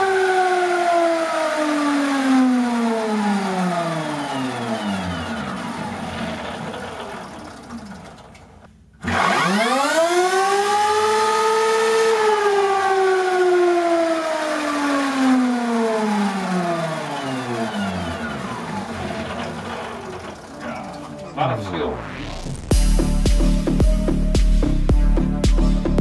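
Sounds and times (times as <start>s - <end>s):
electric motor whine: 9.0s - 12.8s.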